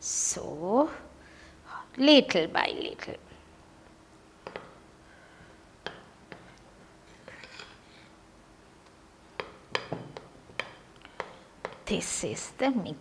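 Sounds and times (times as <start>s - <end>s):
spoon scraping paste in bowl: 7.2s - 7.8s.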